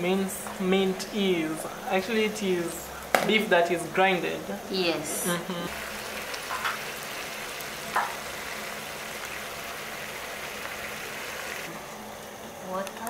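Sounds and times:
food sizzling in a frying pan: 0.2 - 13.0.

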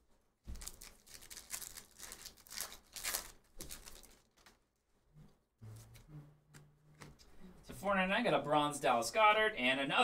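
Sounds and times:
foil wrapper tearing and crinkling: 0.5 - 4.6.

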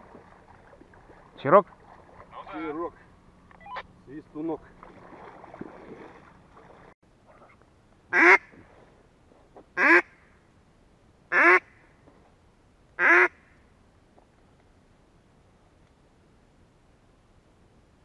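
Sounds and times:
duck quacks: 8.1 - 8.5, 9.8 - 10.1, 11.3 - 11.7, 13.0 - 13.4.

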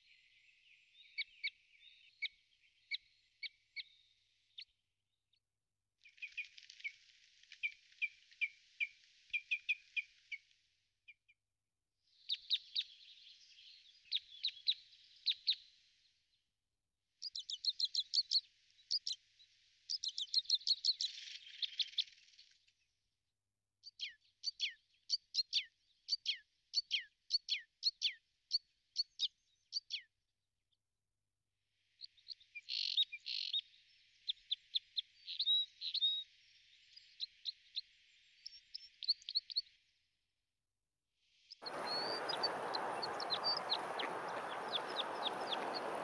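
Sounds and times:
small songbirds chirping: 0.0 - 4.8, 7.6 - 10.5, 12.1 - 15.8, 17.2 - 22.5, 23.8 - 30.1, 32.0 - 39.8, 41.4 - 46.0.

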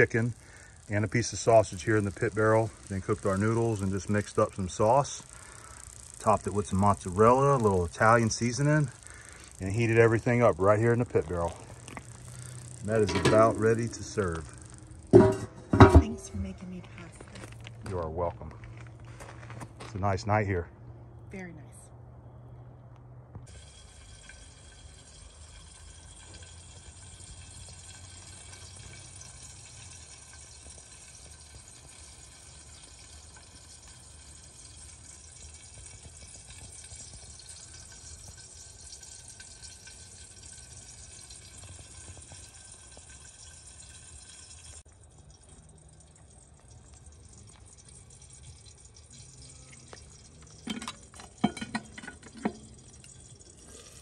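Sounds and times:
steady hiss: 0.0 - 17.2
metal lid clanks: 12.9 - 14.0, 15.1 - 16.4, 50.6 - 53.1.

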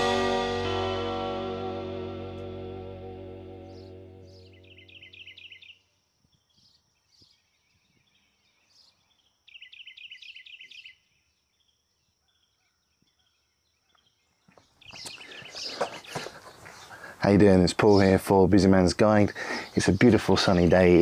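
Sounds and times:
small bird singing high notes: 0.0 - 5.8
footsteps: 14.9 - 16.8.

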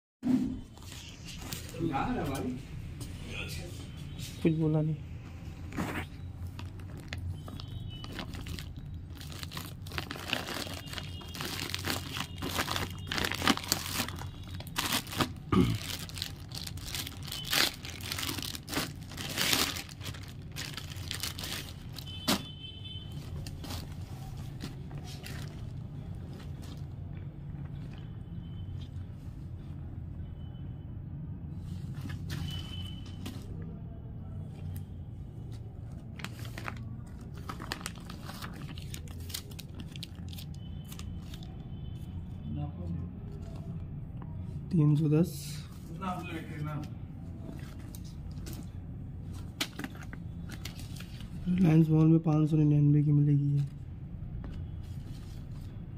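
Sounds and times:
plastic bag crinkling: 6.5 - 22.4, 36.2 - 40.6
plastic mailer tearing: 8.0 - 22.5.

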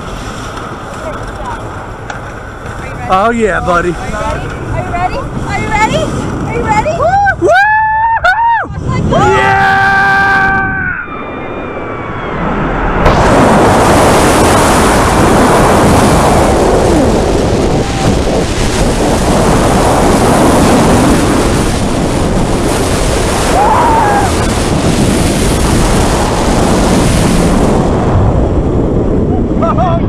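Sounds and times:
wind buffeting microphone: 0.0 - 30.0.

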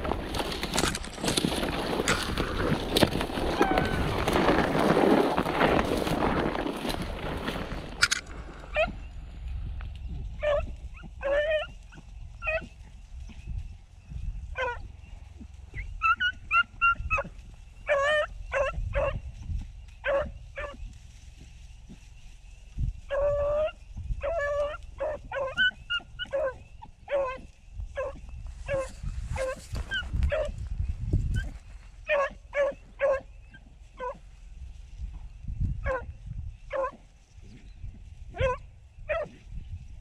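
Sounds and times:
dogs baying and yelping: 3.4 - 4.4, 8.7 - 9.1, 10.4 - 13.4, 14.5 - 19.3, 20.0 - 20.9, 23.0 - 30.6, 31.3 - 34.3, 35.8 - 37.1, 38.3 - 39.5.

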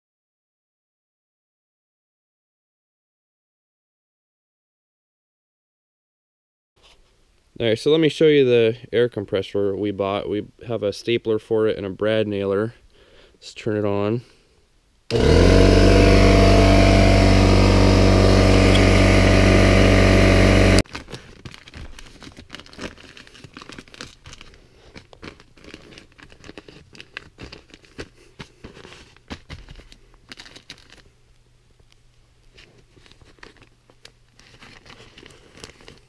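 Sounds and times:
air compressor humming: 15.1 - 20.8
insulation crinkling and rustling: 20.9 - 31.1, 31.8 - 36.0.

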